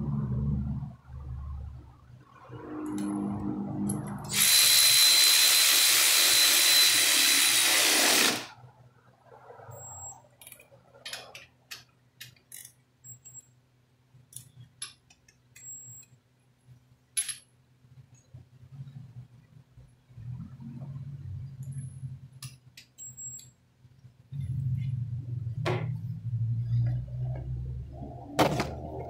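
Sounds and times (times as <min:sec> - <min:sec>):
power wrench hissing and whining: 0:04.3 - 0:08.5.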